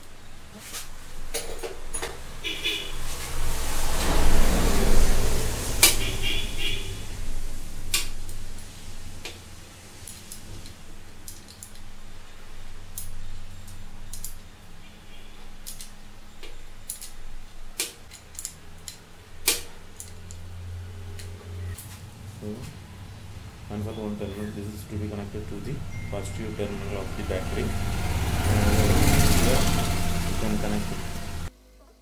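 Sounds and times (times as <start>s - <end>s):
steady low hum: 0.0s - 32.0s
small metal clicks and clinks: 10.0s - 11.9s, 12.9s - 14.5s, 15.6s - 17.2s, 17.8s - 19.0s, 20.0s - 20.4s.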